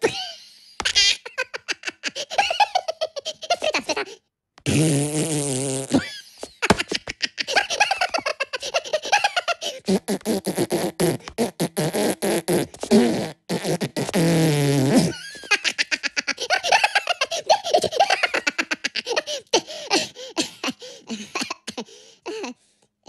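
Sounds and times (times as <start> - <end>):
high-pitched cartoon giggling: 0.0 - 4.2, 6.0 - 9.9, 15.1 - 20.1
cartoon fart: 4.6 - 6.2, 9.8 - 15.3.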